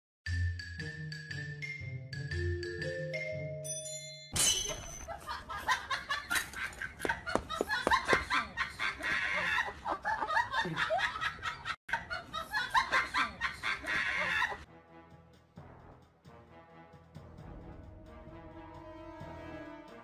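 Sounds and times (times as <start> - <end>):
marimba-like tune: 0.5 - 4.2
people laughing and giggling: 5.0 - 14.7.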